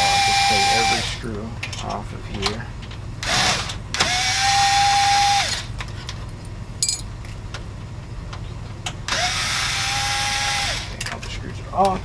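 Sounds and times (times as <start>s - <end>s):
power screwdriver whining: 3.2s - 5.7s, 9.1s - 11.0s.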